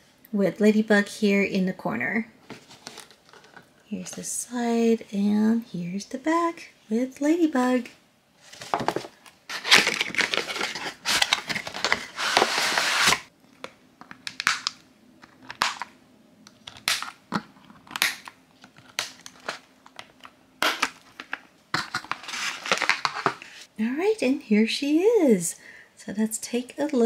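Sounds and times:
cardboard rustling and tearing: 8.5 - 13.3, 20.7 - 23.6.

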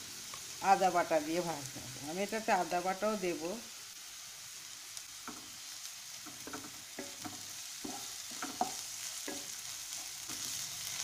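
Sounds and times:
onions sizzling in oil: 0.0 - 11.0
spatula stirring and scraping: 6.2 - 11.0.

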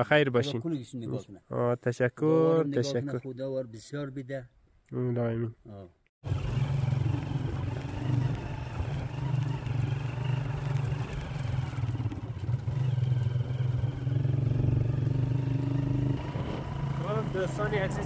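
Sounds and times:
motorcycle engine running: 6.2 - 18.0.

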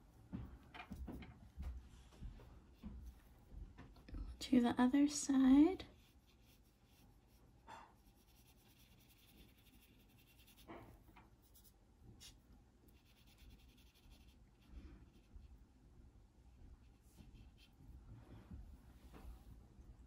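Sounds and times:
brush strokes on paper: 5.8 - 15.6, 16.5 - 19.6.

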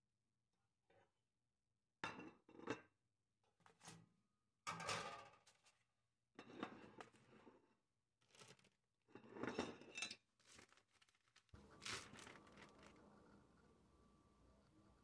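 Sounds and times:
plastic bag crinkling: 10.4 - 13.1.

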